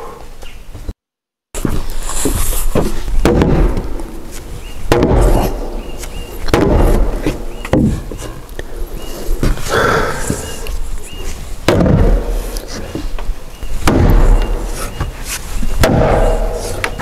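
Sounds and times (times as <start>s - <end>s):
wooden mallet knocking timber: 2.8s - 3.9s, 4.9s - 5.6s, 6.4s - 8.2s, 11.7s - 12.3s, 13.8s - 14.7s, 15.8s - 17.0s.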